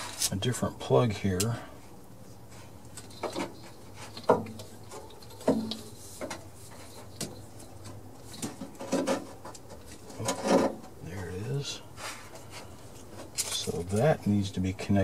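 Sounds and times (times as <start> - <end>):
light clicks and knocks: 2.9 - 11.0.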